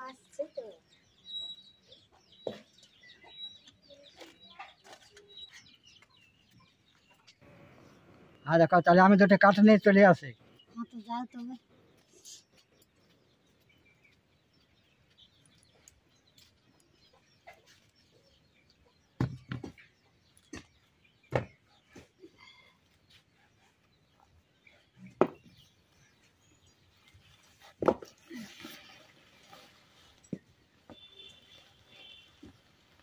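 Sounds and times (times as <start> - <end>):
faint birds chirping: 0.0 - 33.0
bricks knocking on hard ground: 27.8 - 28.1.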